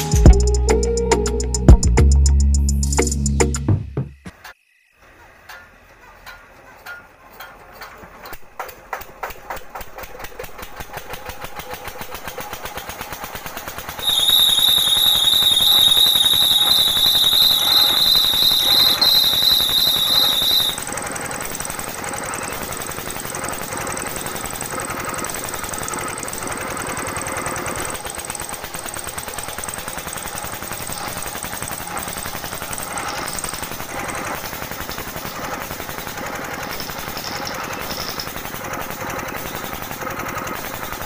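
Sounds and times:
grinder mill rattling: 0:05.4 - 0:41.0
high-pitched squeal: 0:14.0 - 0:20.8.

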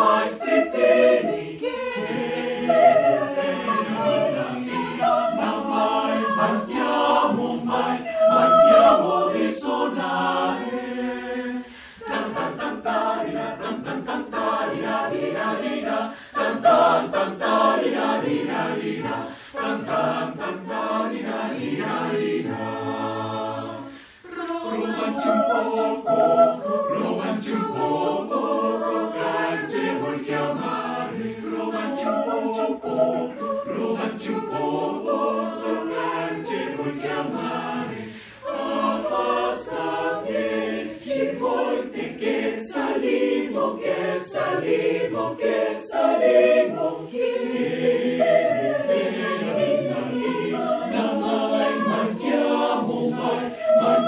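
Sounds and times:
mixed choir singing a cappella: 0:00.0 - 0:54.0.

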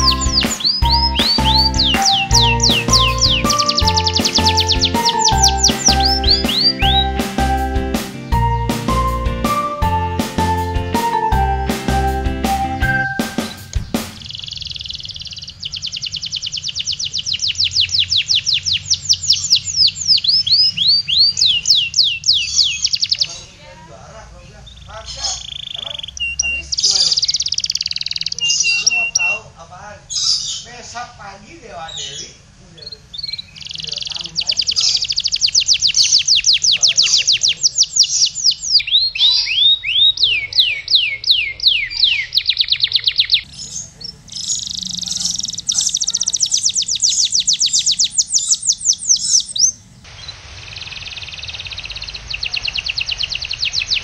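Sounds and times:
canary singing: 0:00.0 - 0:31.1, 0:31.7 - 0:54.0.

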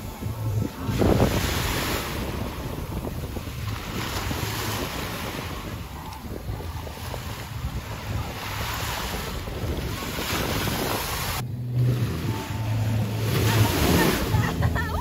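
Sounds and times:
wind buffeting microphone: 0:00.0 - 0:15.0
small waves washing: 0:00.4 - 0:15.0
steady low hum: 0:11.2 - 0:15.0.

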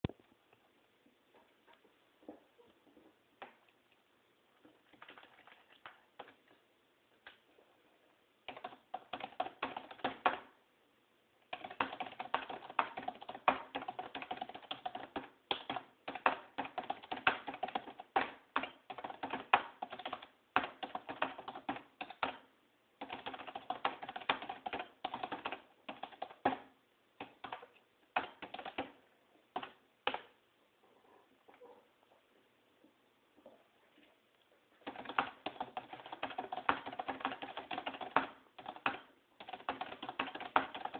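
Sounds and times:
fast typing on keyboard: 0:08.4 - 0:10.5, 0:11.5 - 0:29.0, 0:29.6 - 0:30.2, 0:34.8 - 0:40.9.

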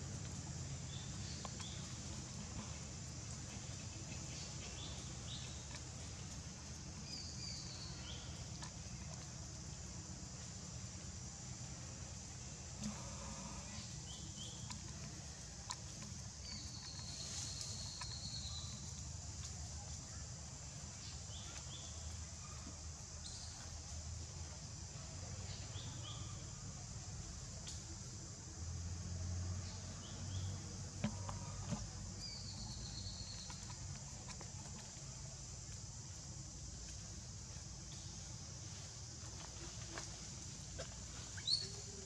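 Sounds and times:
high insect hum: 0:00.0 - 0:42.0.

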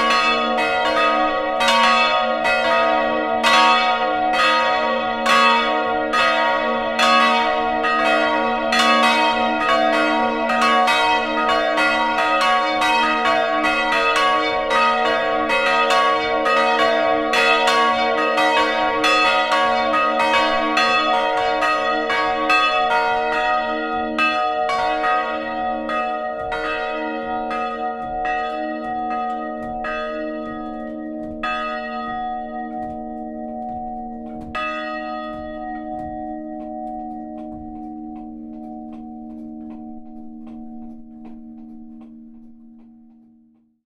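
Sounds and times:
church bells ringing: 0:00.0 - 0:43.7.

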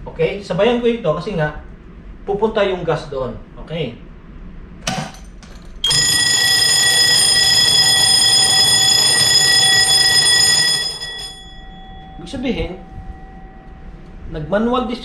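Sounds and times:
fire alarm bell ringing: 0:05.8 - 0:15.0.

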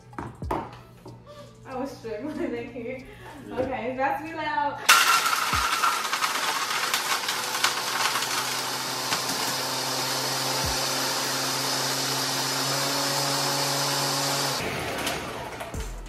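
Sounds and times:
blender running with ice: 0:04.9 - 0:15.6.

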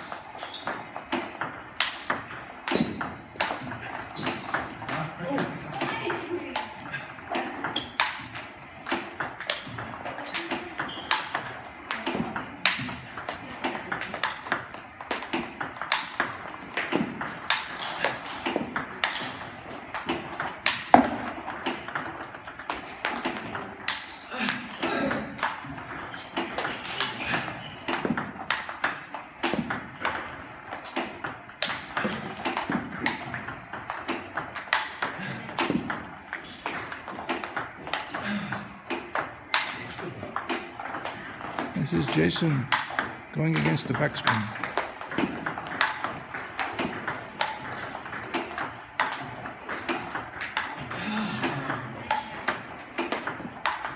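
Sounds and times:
ball bouncing on table: 0:00.0 - 0:24.1, 0:25.4 - 0:53.9
paddle hitting ball: 0:00.0 - 0:24.1, 0:25.3 - 0:53.9.

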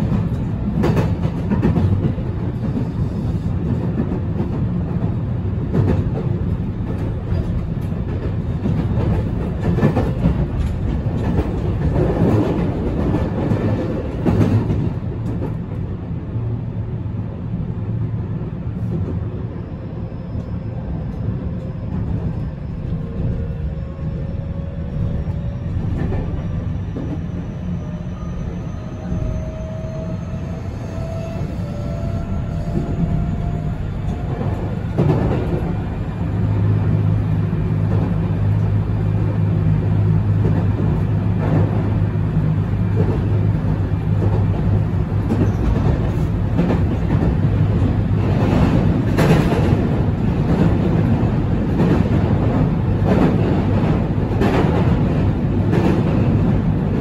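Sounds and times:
rail and wheel noise: 0:00.0 - 0:57.0.

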